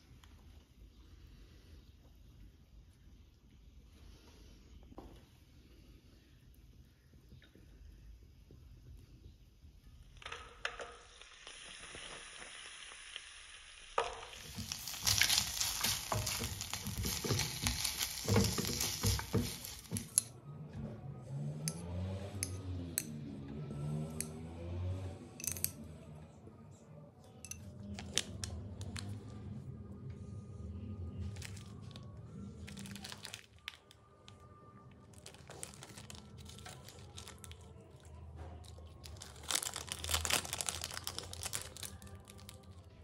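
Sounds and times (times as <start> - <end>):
plastic wrapper crinkling and tearing: 14.0 - 20.2, 27.9 - 29.2, 31.3 - 34.4, 35.0 - 43.0.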